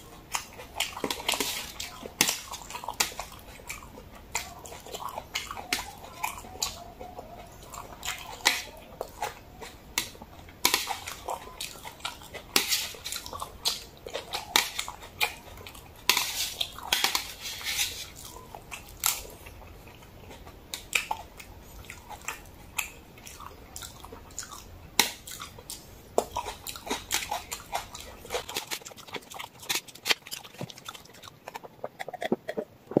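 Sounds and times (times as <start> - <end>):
wet chewing and mouth smacks: 0.0 - 33.0
sharp mouth clicks: 28.4 - 33.0.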